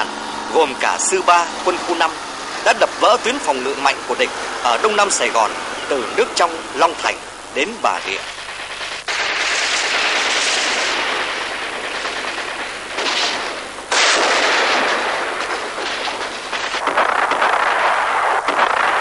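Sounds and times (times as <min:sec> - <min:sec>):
explosions: 0:07.9 - 0:19.0
gunfire: 0:07.9 - 0:19.0.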